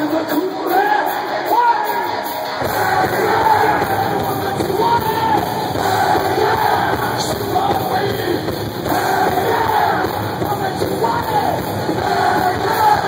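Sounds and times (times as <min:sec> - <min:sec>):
concert crowd: 0:00.0 - 0:13.0
live heavy rock band: 0:00.0 - 0:13.0.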